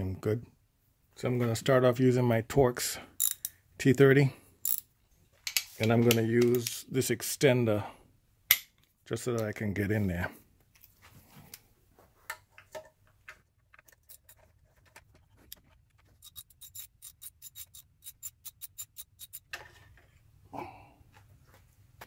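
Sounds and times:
ratchet clicking: 0:03.2 - 0:03.5, 0:04.6 - 0:04.8, 0:16.2 - 0:19.5
metal tool clicks: 0:03.2 - 0:03.6, 0:04.6 - 0:04.8, 0:15.5 - 0:19.5.

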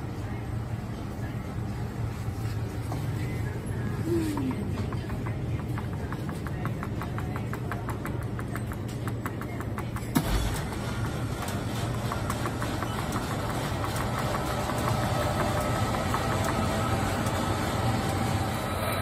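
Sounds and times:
drink dispenser humming: 0:02.4 - 0:19.0
fast regular ticking: 0:04.6 - 0:18.3.

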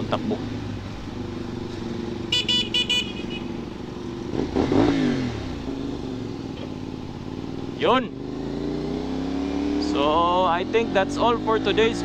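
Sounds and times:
motorcycle engine running: 0:00.0 - 0:12.0
motorcycle horn tooting: 0:02.2 - 0:03.7.

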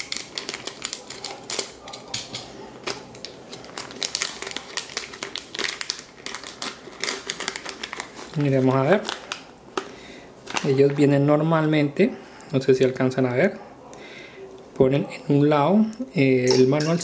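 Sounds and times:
plastic packet crinkling: 0:00.0 - 0:11.2.

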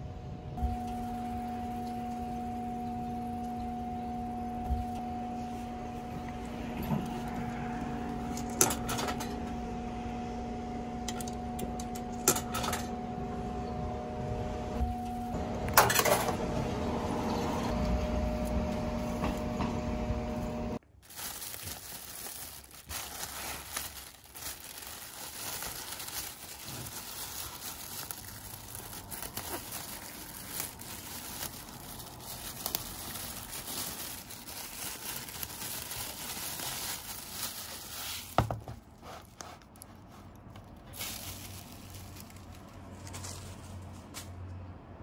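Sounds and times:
plastic bag crinkling: 0:20.8 - 0:43.7.

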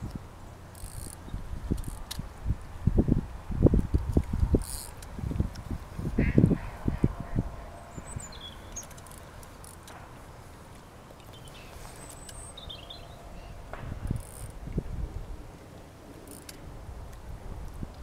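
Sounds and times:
high bird chirps: 0:07.7 - 0:09.1, 0:11.3 - 0:13.6.

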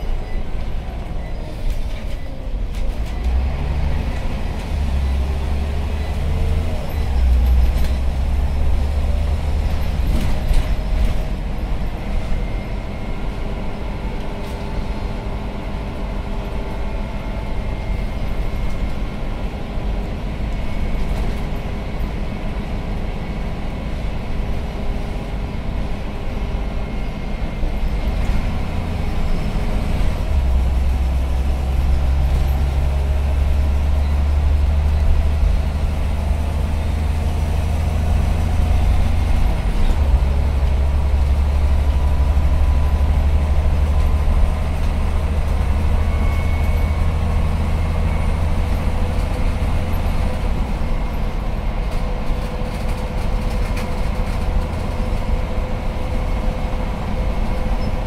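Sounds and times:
bus engine drone: 0:00.0 - 0:58.0
road noise: 0:00.0 - 0:58.0.

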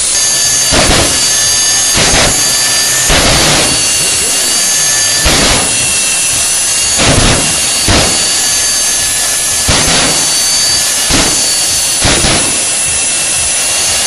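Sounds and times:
turbine engine whine: 0:00.0 - 0:14.0.

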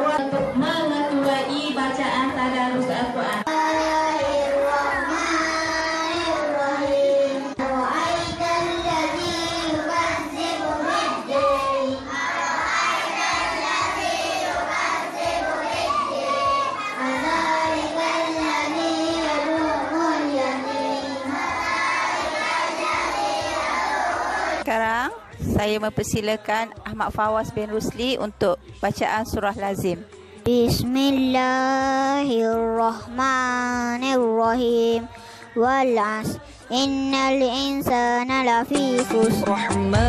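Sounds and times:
child chanting into a microphone: 0:03.4 - 0:24.6, 0:30.4 - 0:39.8.

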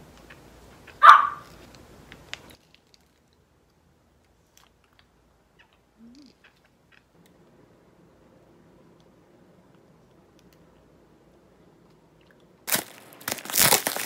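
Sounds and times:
dog barking: 0:01.0 - 0:01.5.

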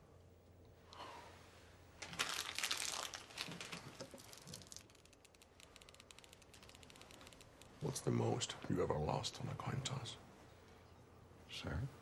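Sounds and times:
plastic wrapper crinkling: 0:02.0 - 0:07.6.

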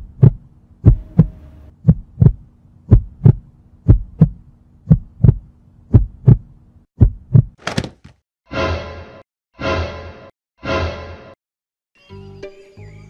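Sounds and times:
heartbeat thumps: 0:00.0 - 0:07.6.

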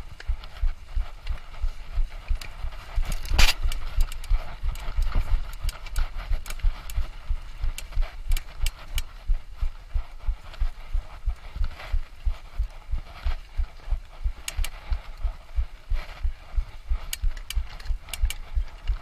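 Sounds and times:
rattling clicks: 0:17.1 - 0:19.0.

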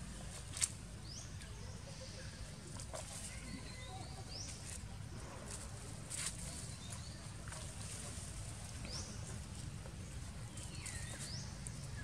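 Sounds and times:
soft rustles: 0:04.3 - 0:12.0.

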